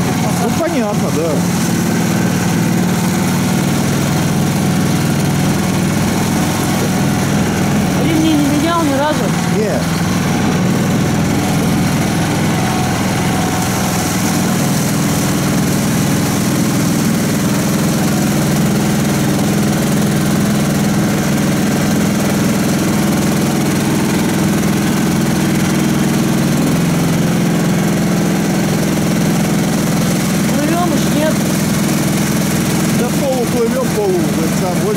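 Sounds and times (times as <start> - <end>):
vehicle engine running: 0.0 - 34.9.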